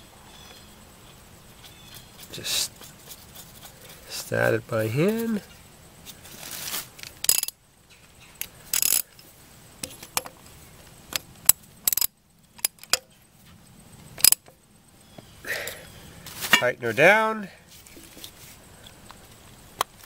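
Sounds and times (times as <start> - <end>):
metallic clicks and clinks: 7.0 - 7.6, 8.4 - 10.4, 11.1 - 13.1, 14.2 - 14.5
ratchet clicks: 7.0 - 7.6, 8.4 - 9.2, 11.1 - 13.1, 14.2 - 14.5.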